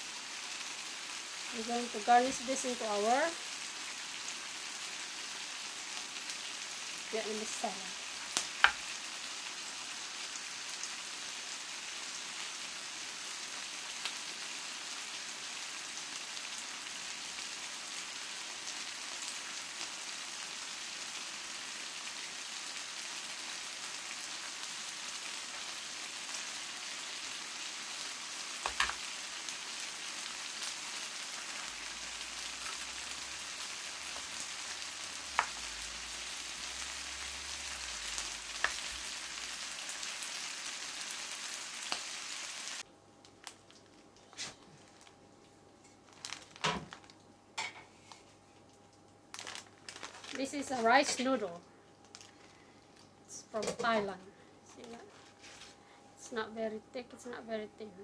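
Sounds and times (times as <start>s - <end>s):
meat sizzling in a skillet: 0.0s - 42.9s.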